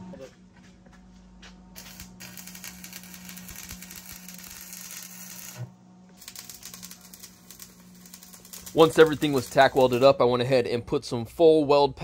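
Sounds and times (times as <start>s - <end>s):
steady low hum: 0.0s - 12.0s
welding arc crackling: 1.8s - 10.2s.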